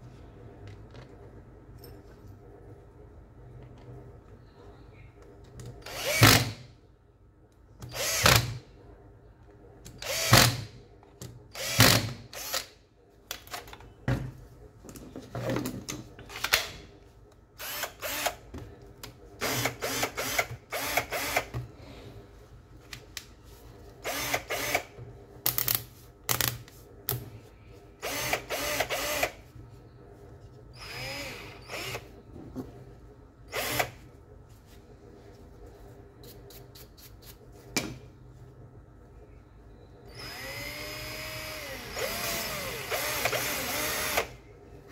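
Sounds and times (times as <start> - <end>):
drill motor bursts: 30.8 - 32.0, 40.1 - 44.3.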